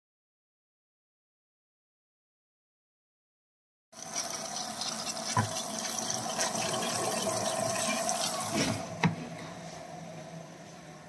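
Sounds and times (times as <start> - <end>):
water rushing into washing machine: 4.0 - 10.0
steady hum: 5.7 - 11.0.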